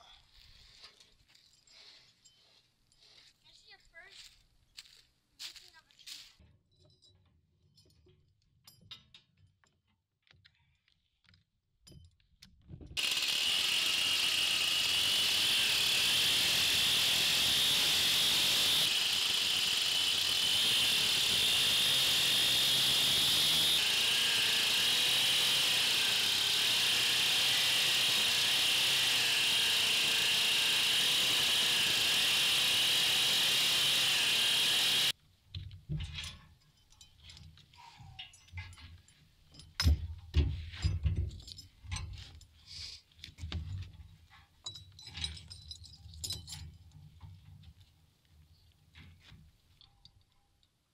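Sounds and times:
faint clinks: 0.8 - 3.4, 36.1 - 39.9
chainsaw cutting wood: 13.0 - 35.2.

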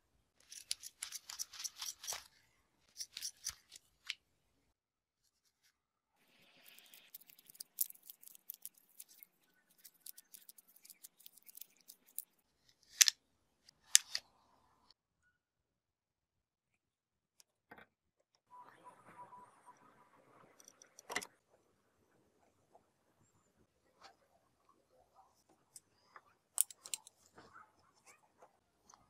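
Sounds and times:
scissors snipping rubber glove: 0.4 - 2.3, 2.9 - 4.2
small clicks: 6.6 - 13.2.

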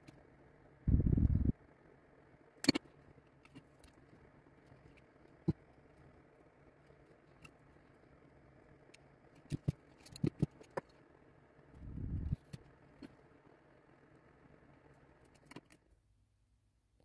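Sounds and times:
muffled low rumble: 0.9 - 1.5, 11.8 - 12.4.

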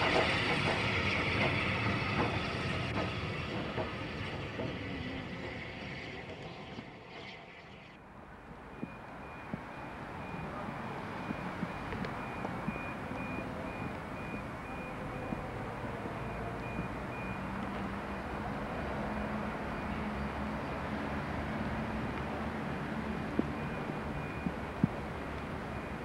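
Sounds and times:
diesel locomotive engine hum: 0.0 - 26.0
faint high repeating beep: 8.7 - 17.5, 23.0 - 26.0.

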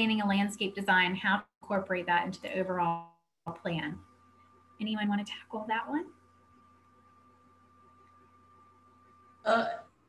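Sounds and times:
faint hum and hiss: 0.0 - 10.0.

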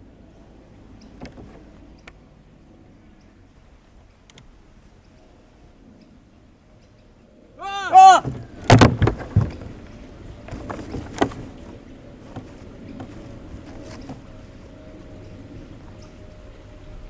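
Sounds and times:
wooden door knocks and bangs: 8.2 - 9.6.

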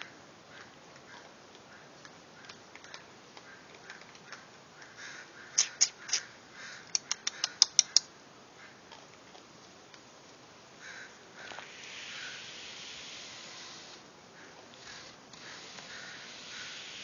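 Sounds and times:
raccoons chewing dry food: 0.5 - 5.0, 8.9 - 10.4.

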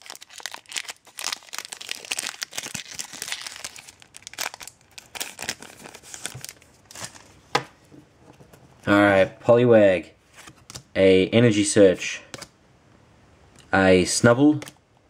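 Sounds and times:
foil wrapper tearing and crinkling: 0.0 - 7.1.

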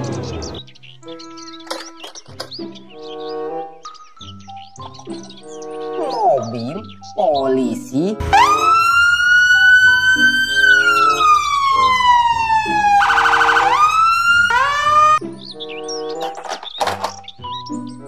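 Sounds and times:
background music: 0.0 - 18.0
police siren wailing: 8.2 - 15.2.

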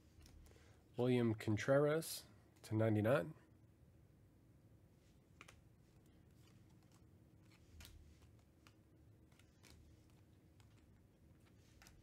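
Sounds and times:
trading cards sliding: 5.3 - 12.0.

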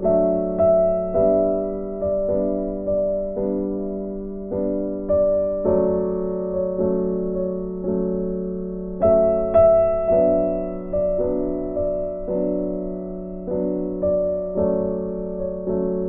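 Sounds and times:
gentle piano notes: 0.0 - 16.0.

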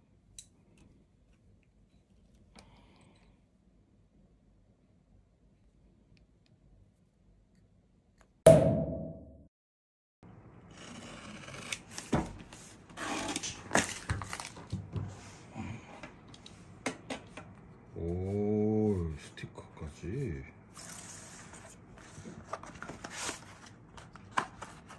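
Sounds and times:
loud ringing hit: 8.5 - 9.5.

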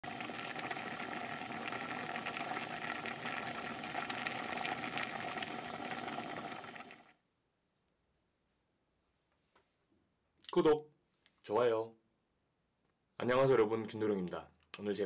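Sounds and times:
stew boiling with crackling pops: 0.0 - 7.1.

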